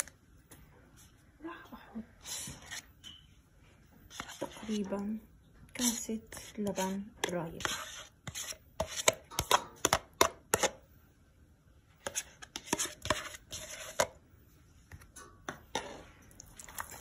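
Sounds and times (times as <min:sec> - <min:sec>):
yogurt scooped from plastic tub: 0:04.1 - 0:04.9.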